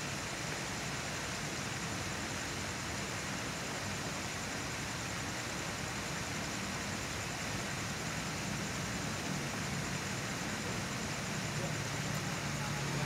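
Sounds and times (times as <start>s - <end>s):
background hiss: 0.0s - 13.0s.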